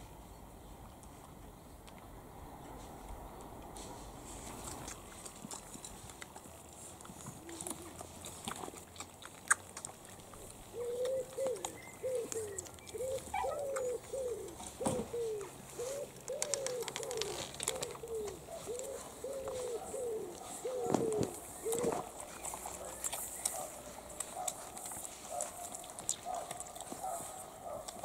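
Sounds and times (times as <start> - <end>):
pigeon cooing: 7.3 - 8.2, 10.4 - 24.6.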